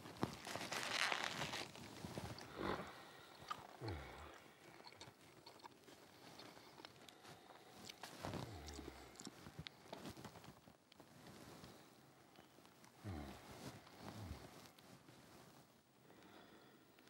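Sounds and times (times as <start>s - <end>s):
man chewing pastry: 0.3s - 11.1s
wet mouth clicks: 3.4s - 6.9s.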